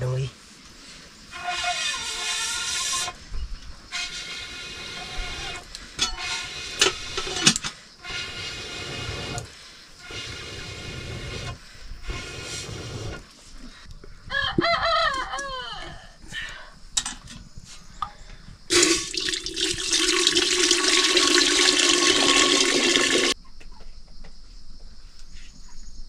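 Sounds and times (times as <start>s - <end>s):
rooster crowing: 14.3s - 16.2s
pressure cooker whistling: 18.7s - 23.4s.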